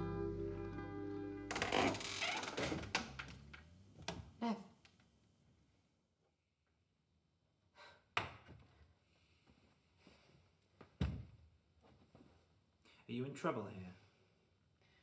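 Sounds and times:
soft breath: 9.0 - 10.6.

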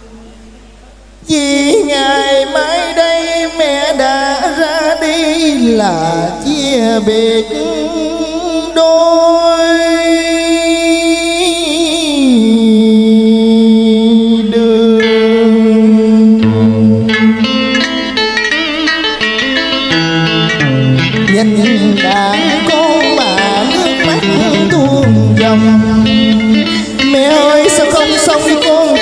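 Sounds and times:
man singing through pa: 1.2 - 20.0, 20.6 - 29.0
steady held note: 15.1 - 29.0.

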